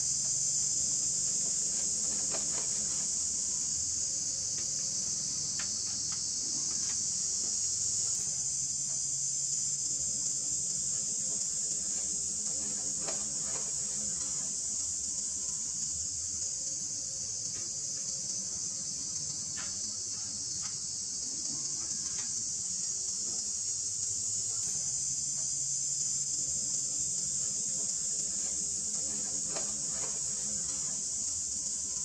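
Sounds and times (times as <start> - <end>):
insect chorus droning: 0.0 - 32.0.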